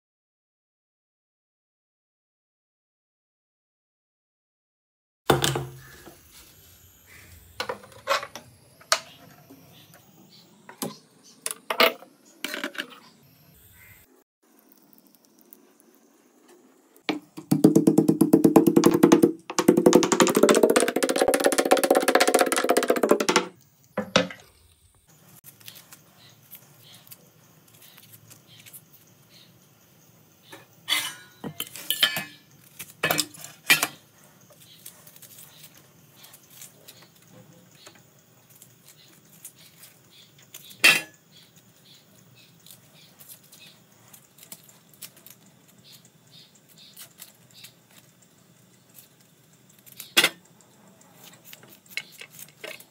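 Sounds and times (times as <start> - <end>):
pitched hum with rapid rattle: 5.3 - 15.0
metal utensils clinking: 30.9 - 32.4, 33.0 - 34.0, 40.8 - 41.2, 50.1 - 50.4.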